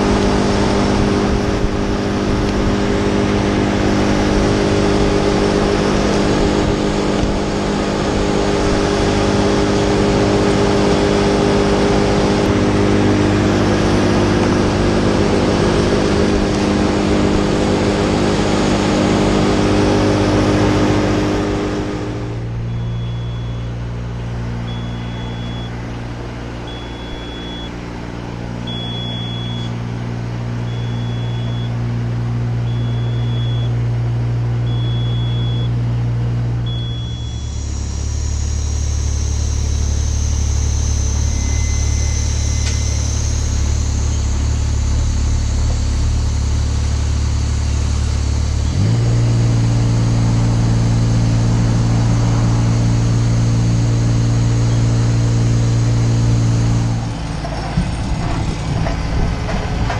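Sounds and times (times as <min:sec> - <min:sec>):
low motor hum: 0:00.0 - 0:59.9
small engine idling: 0:00.0 - 0:59.9
short warning beeps: 0:22.6 - 0:26.0, 0:26.6 - 0:27.8, 0:28.6 - 0:29.8, 0:30.7 - 0:31.8, 0:32.6 - 0:33.8, 0:34.7 - 0:35.8, 0:36.7 - 0:43.6.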